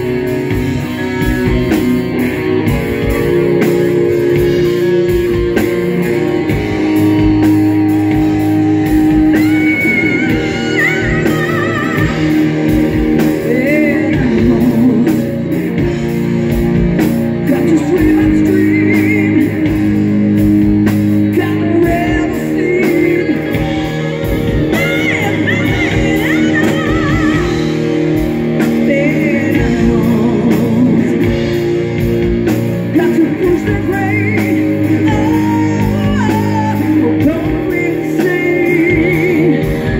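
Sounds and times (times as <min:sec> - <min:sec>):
drums: 0:00.0 - 0:39.9
electric guitars: 0:00.0 - 0:39.9
woman singing: 0:08.8 - 0:15.6, 0:17.4 - 0:19.9, 0:21.3 - 0:31.5, 0:32.9 - 0:39.9.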